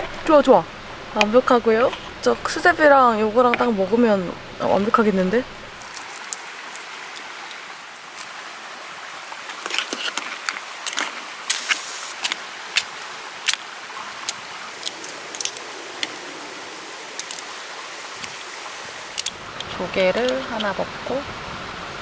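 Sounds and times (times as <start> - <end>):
rain hiss: 0.0 - 22.0
chopsticks tapping metal pot: 19.2 - 20.8.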